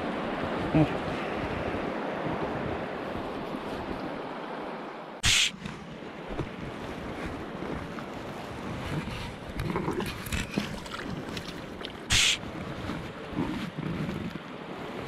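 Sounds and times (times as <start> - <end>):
river running over stones: 2.8 - 15.0
splashes and knocks at water's edge: 9.6 - 12.1.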